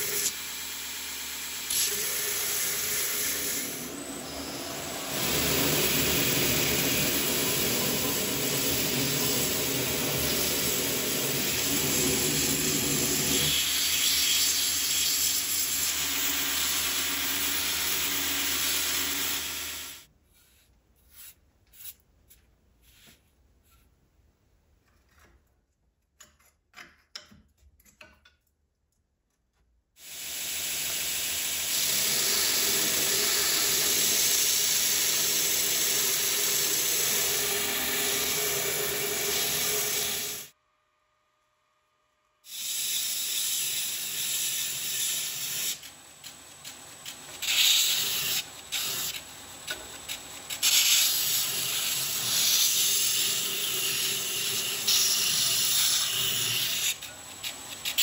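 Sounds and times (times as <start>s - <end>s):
belt grinder grinding steel: 30.8s - 40.5s, 42.5s - 58.0s.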